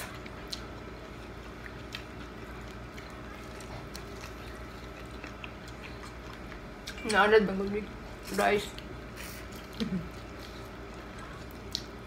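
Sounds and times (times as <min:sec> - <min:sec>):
background hum: 0:00.0 - 0:12.0
eating clicks and smacks: 0:01.4 - 0:07.2, 0:09.6 - 0:12.0.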